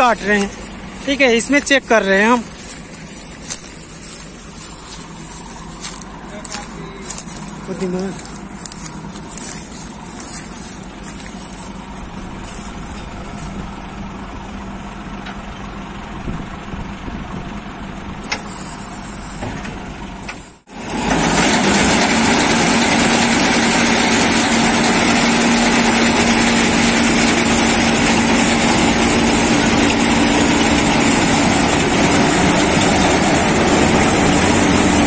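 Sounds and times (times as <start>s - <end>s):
low hum: 0.0s - 18.2s
combine harvester running: 0.0s - 35.0s
hiss: 18.3s - 19.5s.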